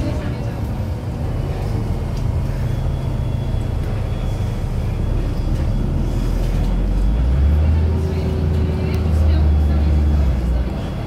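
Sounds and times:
bus diesel engine drone: 0.0 - 11.0
road rumble: 0.0 - 11.0.

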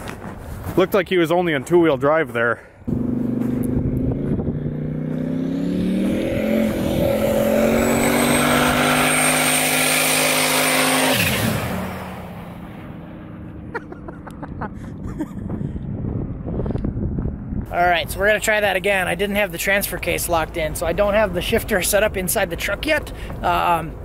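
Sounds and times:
pickup truck accelerating: 2.9 - 15.6.

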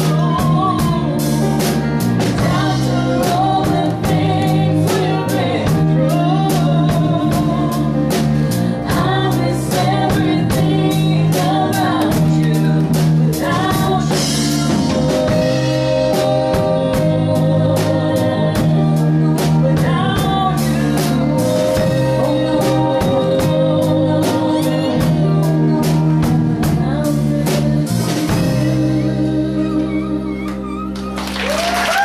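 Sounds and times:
drums and cymbals: 0.0 - 30.7
woman singing: 0.0 - 31.0
bass guitar: 0.0 - 32.0
audience applause: 30.8 - 32.0.

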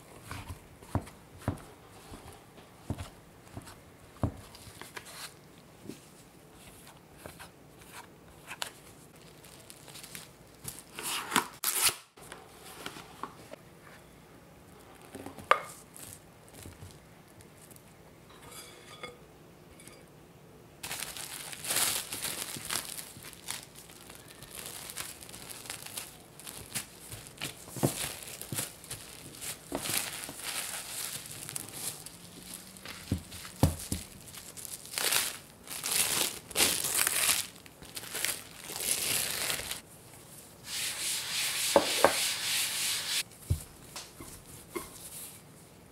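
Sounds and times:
plastic wrap crinkling: 8.6 - 11.9, 20.8 - 39.8.

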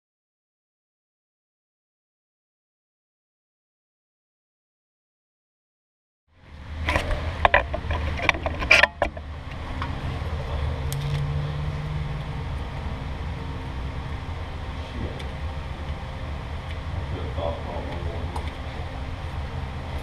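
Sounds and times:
steady low hum: 6.3 - 20.0.

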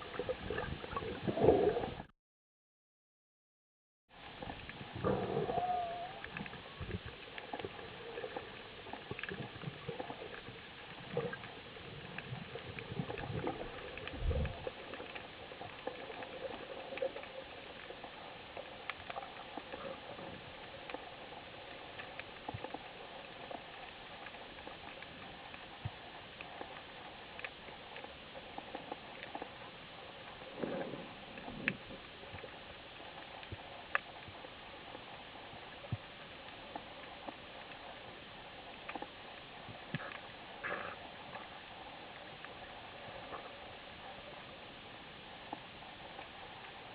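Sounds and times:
low bubbling rushes: 0.0 - 2.1, 4.3 - 18.0
sharp clicks and crackles: 6.2 - 43.8
underwater hiss: 39.8 - 46.9.

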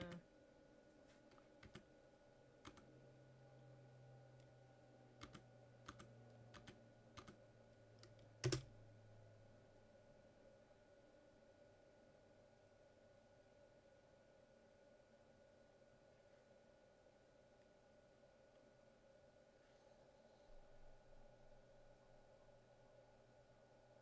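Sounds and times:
computer keyboard keystrokes: 0.0 - 0.2, 1.3 - 1.8, 2.6 - 2.9, 5.2 - 7.4, 8.0 - 8.7
faint low hum: 0.0 - 24.0.

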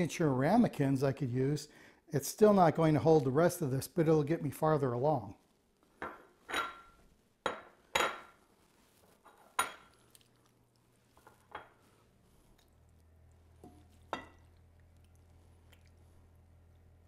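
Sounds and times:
faint low hum: 9.6 - 17.0.

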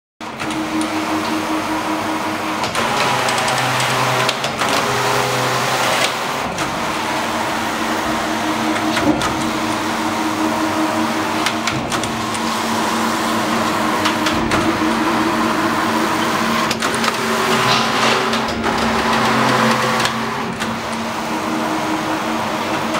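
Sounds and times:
knitting machine whirring: 0.3 - 22.9
sharp mechanical knocks: 16.2 - 21.1.

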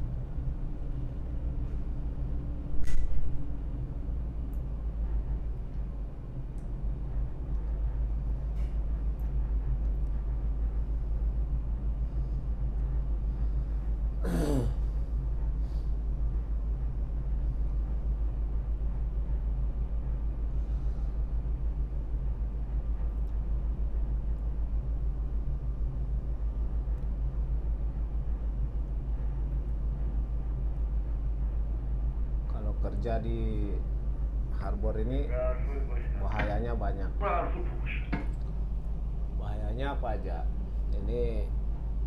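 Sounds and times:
diesel engines droning: 34.5 - 41.4.

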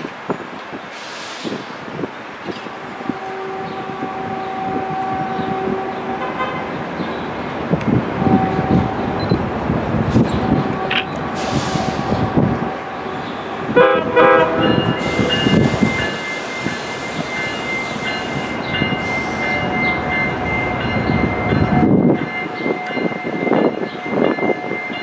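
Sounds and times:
train running with rumble: 0.0 - 25.0
train horn blasts: 2.8 - 6.9, 8.2 - 9.2, 10.2 - 17.0.

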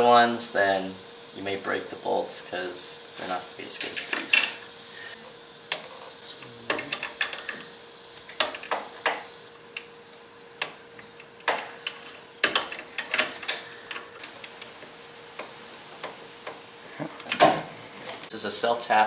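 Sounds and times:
metal tools clinking: 3.7 - 4.6.

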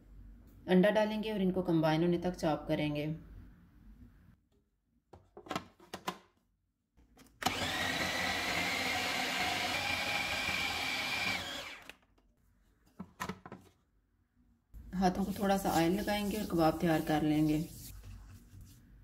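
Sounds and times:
food chopper motor whining: 7.4 - 12.0.

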